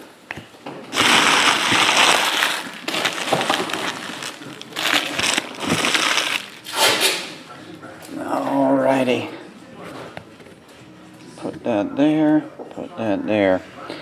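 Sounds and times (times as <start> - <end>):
packaging crumpled by hand: 0.9 - 7.0.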